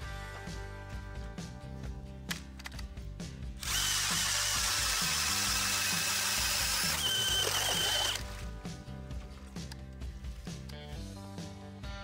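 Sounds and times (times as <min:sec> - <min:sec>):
ice auger whining: 0:03.6 - 0:08.4.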